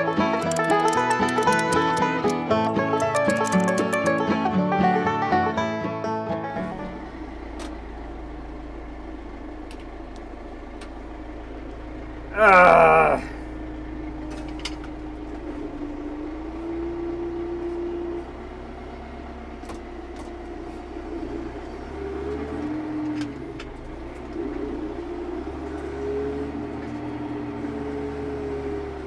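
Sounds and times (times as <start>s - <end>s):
faint clicks: 0.0s - 4.3s
tractor engine humming: 0.0s - 5.4s, 6.4s - 29.0s.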